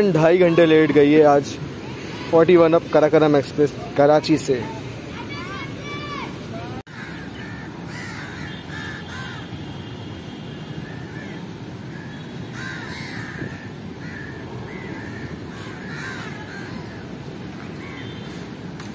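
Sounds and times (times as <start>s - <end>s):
steady background noise: 0.0s - 18.9s
crows cawing: 6.9s - 9.6s, 10.8s - 17.0s, 17.8s - 18.2s.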